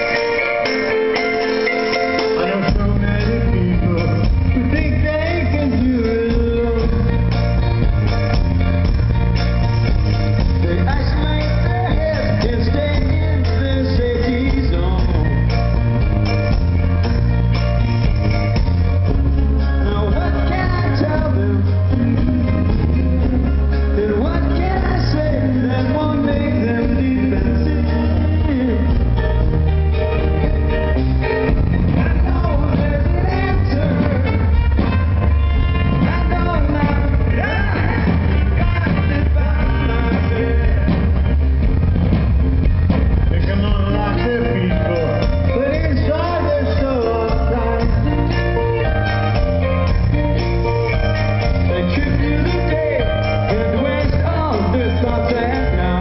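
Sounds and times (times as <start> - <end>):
person singing: 0.0 - 8.0, 10.4 - 15.9, 19.1 - 29.7, 31.5 - 41.4, 43.2 - 56.0
bass and drums: 0.0 - 56.0
keyboard and guitar chords: 0.0 - 56.0
pop-rock band over pa: 0.0 - 56.0.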